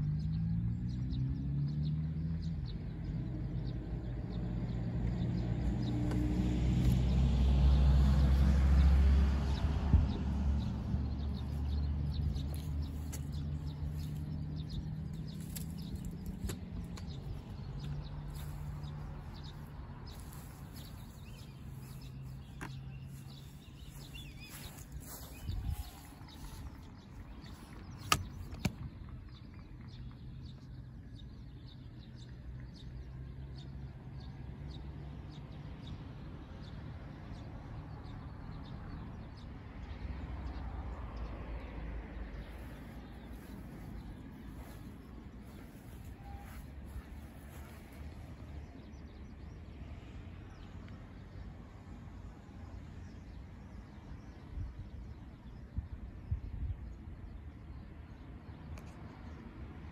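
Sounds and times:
wind rumble on microphone: 0:02.6 - 0:33.7, 0:53.1 - 0:59.9
steady low rumble: 0:09.4 - 0:31.0, 0:42.1 - 0:48.7
small birds chirping: 0:09.5 - 0:34.8, 0:42.2 - 0:59.7
faint bird chirps: 0:45.5 - 0:47.8.

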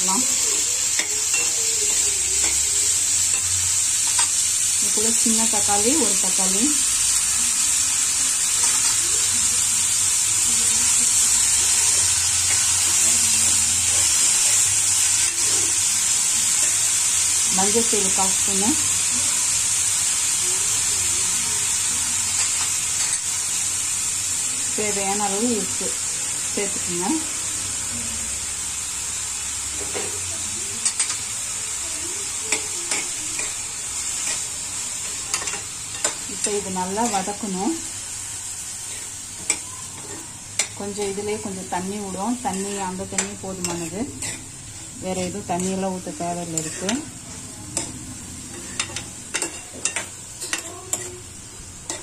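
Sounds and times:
vegetables sizzling in hot oil: 0:00.0 - 0:52.0
steel spoon stirring: 0:00.3 - 0:04.4, 0:35.1 - 0:37.4, 0:38.9 - 0:51.2.

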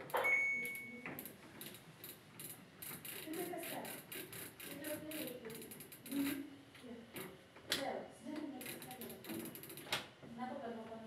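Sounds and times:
high electronic beep: 0:00.2 - 0:01.1
rotary dial clicking: 0:00.6 - 0:06.4, 0:08.6 - 0:10.0.

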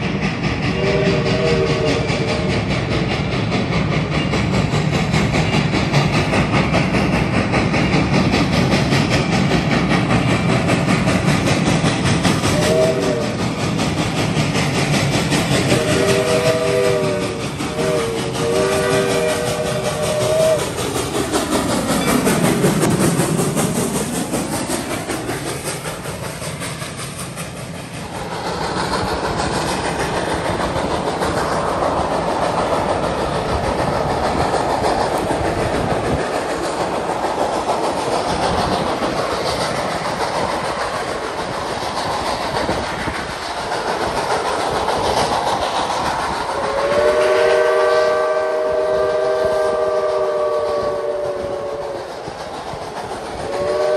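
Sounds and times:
steam locomotive passing: 0:00.0 - 0:53.9
train coaches rolling on track: 0:00.0 - 0:53.9
steam whistle chord: 0:00.7 - 0:02.3, 0:12.6 - 0:13.3, 0:15.8 - 0:20.6, 0:46.7 - 0:51.9, 0:53.5 - 0:53.9.

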